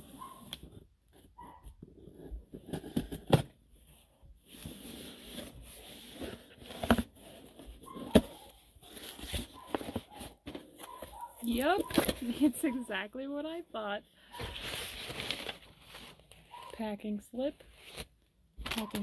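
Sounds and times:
cardboard rustling and scraping: 0.0 - 12.8, 14.3 - 16.9.

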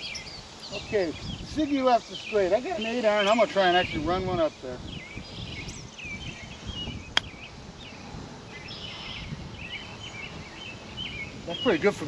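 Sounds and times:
birds chirping: 0.0 - 12.0
golf club striking ball: 7.1 - 7.4.

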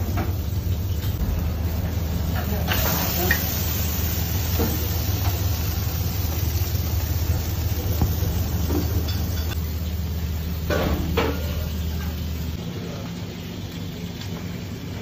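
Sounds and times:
constant low hum: 0.0 - 15.0
fish sizzling on a grill: 0.0 - 15.0.

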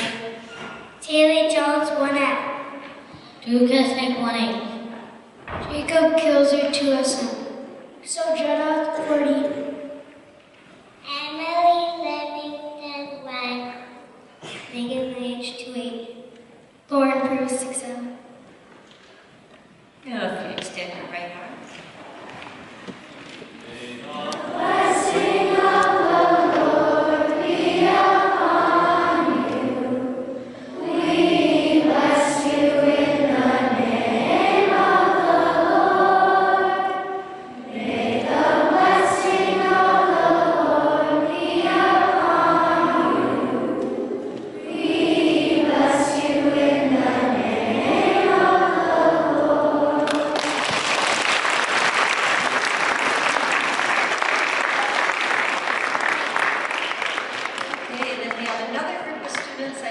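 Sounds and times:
children singing together: 24.1 - 50.7
applause: 50.0 - 58.7, 59.3 - 59.6.

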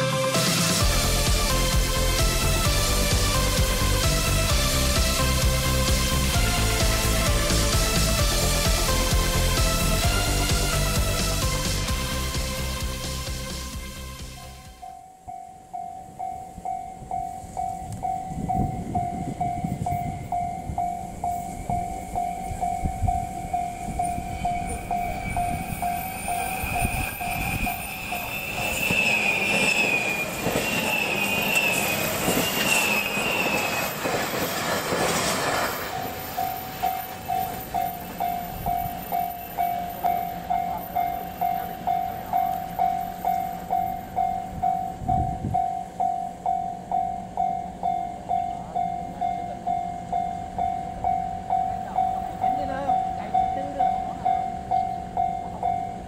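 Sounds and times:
level-crossing alarm dinging: 0.0 - 13.0, 14.4 - 56.0
train passing with wheel noise: 0.0 - 56.0
high squealing tones: 21.1 - 34.6.

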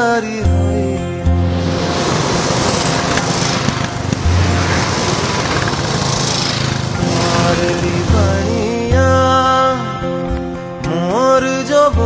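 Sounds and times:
motorcycles riding past: 1.4 - 9.8.

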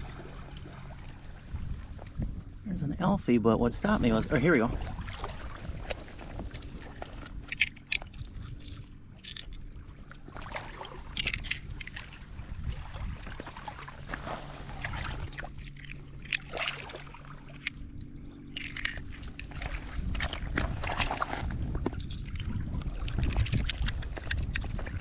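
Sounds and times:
low steady hum: 0.0 - 25.0
seashells crunching and clinking: 7.4 - 9.6, 11.1 - 12.1, 15.2 - 19.6.

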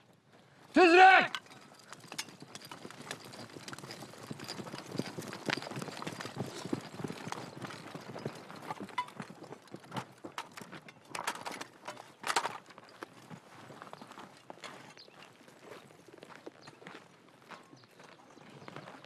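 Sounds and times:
boots running on dry ground: 1.0 - 19.0
equipment rattling and knocking: 1.3 - 13.4.

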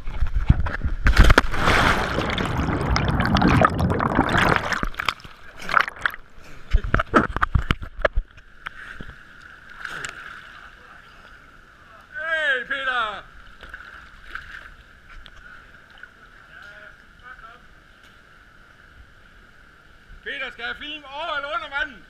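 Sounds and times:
water splashing and rushing: 0.1 - 8.2.

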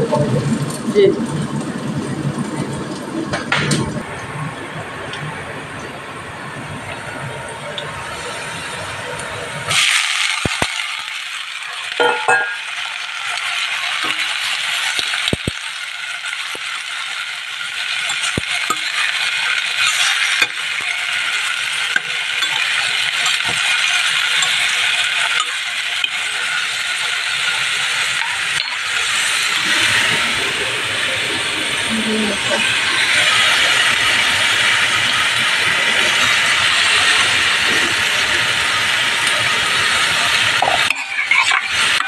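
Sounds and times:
green beans sizzling in a pan: 8.1 - 42.0
utensil clinking against pan: 12.0 - 12.7.

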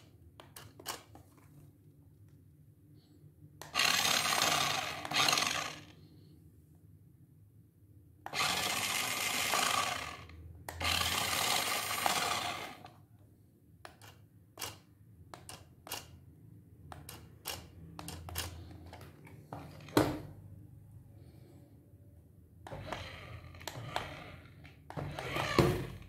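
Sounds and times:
toy car motor whirring: 3.6 - 6.0, 8.3 - 12.9, 14.0 - 16.1, 17.0 - 19.0, 22.7 - 26.0.

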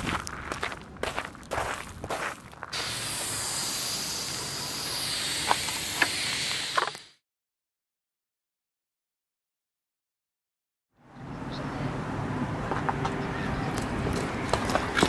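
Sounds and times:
scuffing: 0.0 - 2.8
spray paint can hissing: 2.7 - 7.2.

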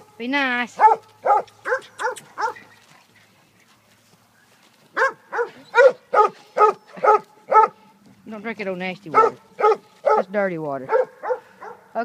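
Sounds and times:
dog play-barking: 0.8 - 2.6, 5.0 - 7.8, 9.1 - 10.3, 10.9 - 11.8.

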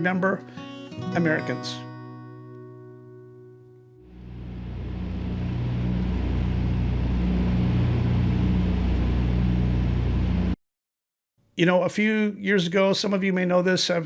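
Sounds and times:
guitar note: 0.5 - 10.5
low engine drone: 4.1 - 10.6.

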